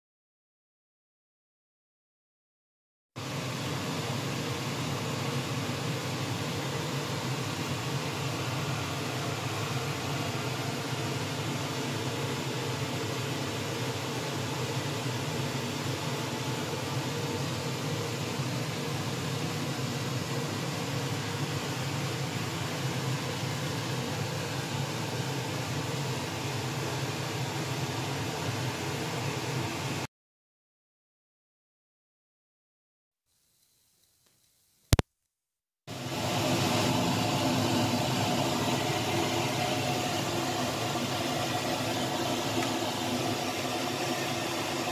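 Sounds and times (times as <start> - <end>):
mechanical hum and hiss: 3.2 - 30.1, 35.9 - 44.9.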